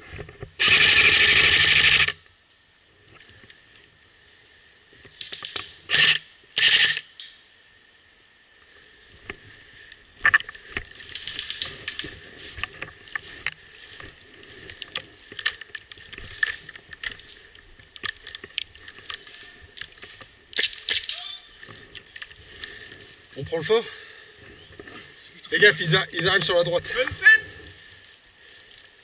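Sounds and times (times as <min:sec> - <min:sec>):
airsoft gunfire bursts: 0:00.6 - 0:02.2
rustling in undergrowth: 0:08.6 - 0:29.0.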